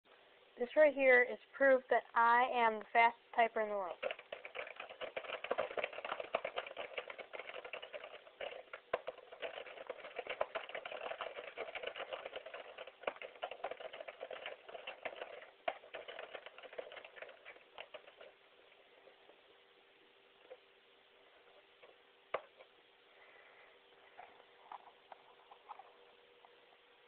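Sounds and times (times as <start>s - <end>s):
computer keyboard typing: 3.8s - 18.4s.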